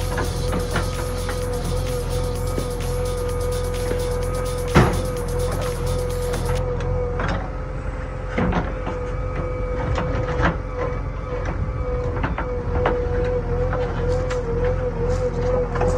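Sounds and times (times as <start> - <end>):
high whine: 0.0 - 7.9
diesel engine droning: 0.0 - 15.9.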